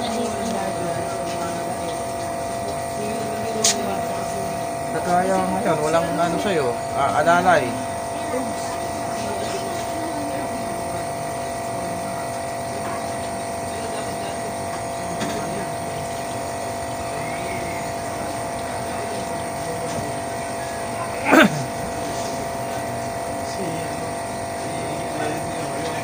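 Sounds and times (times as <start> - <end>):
steady mechanical hum: 0.0 - 26.0.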